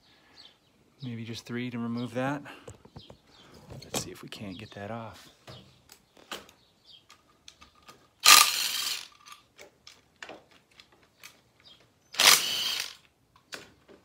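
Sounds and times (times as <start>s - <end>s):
cordless power driver spinning: 8.2s - 9.2s, 12.2s - 13.0s.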